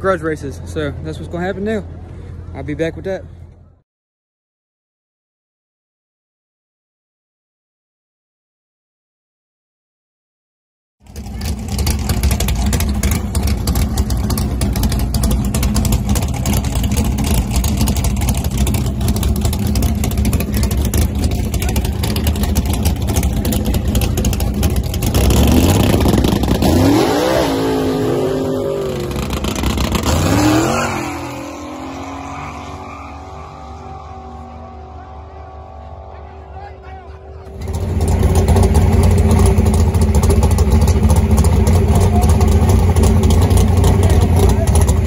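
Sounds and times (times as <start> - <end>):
truck engine revving: 11.1 - 45.0.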